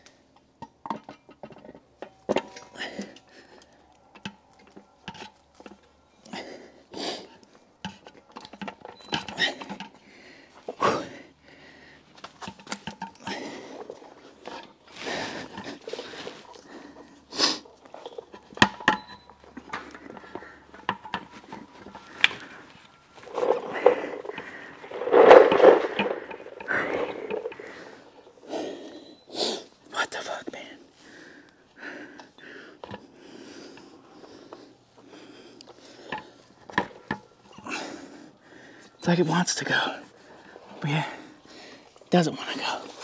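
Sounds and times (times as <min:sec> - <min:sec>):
person grunting and straining: 0:10.8 - 0:11.2.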